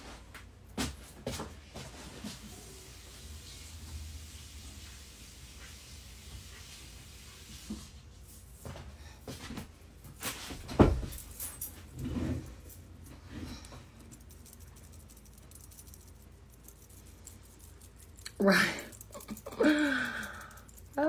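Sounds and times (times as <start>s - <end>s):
knocks and rustles of handling: 7.7s - 15.0s.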